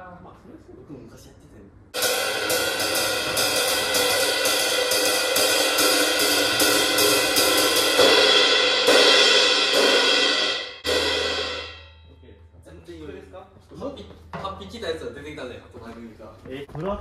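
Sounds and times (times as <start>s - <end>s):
cymbals struck in ringing wash: 2.0s - 12.3s.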